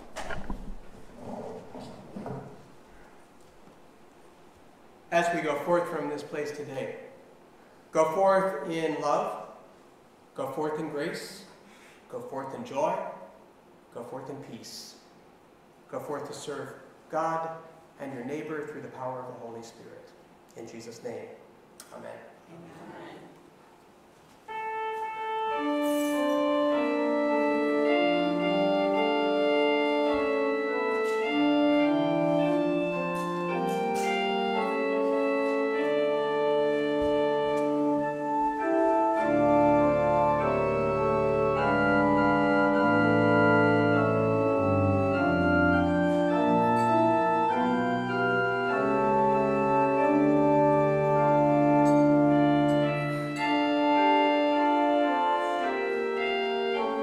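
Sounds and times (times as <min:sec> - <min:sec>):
organ playing slow chords: 0:01.0 - 0:14.1, 0:24.4 - 0:57.0
deep organ bass pedal notes: 0:24.5 - 0:57.0.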